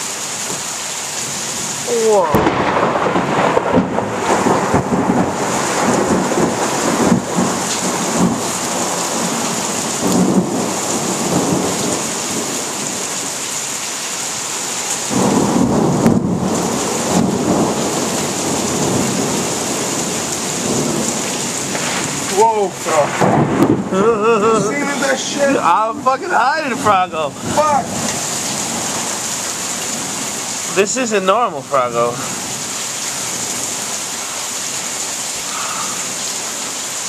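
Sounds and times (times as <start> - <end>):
heavy rain hissing: 0.0 - 37.0
thunder rumbling: 1.9 - 13.2, 15.1 - 30.5.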